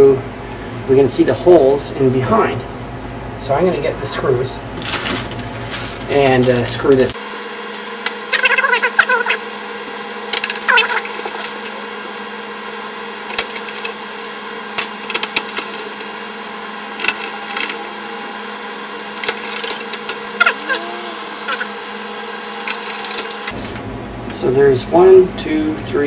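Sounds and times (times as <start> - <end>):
steady hum: 0.0 - 26.0
indistinct muttering: 8.2 - 9.5, 10.5 - 11.7, 17.0 - 23.5.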